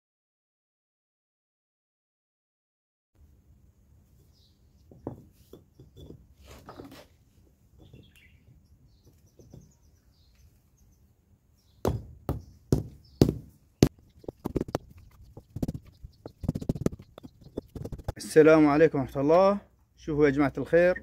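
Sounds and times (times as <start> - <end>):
rubber mallet tapping paver: 11.9 - 18.2.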